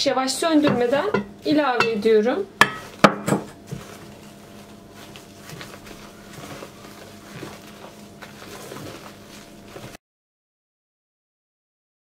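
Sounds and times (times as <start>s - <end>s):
steady low hum: 0.0s - 10.0s
spatula squelching and scraping batter: 2.7s - 10.0s.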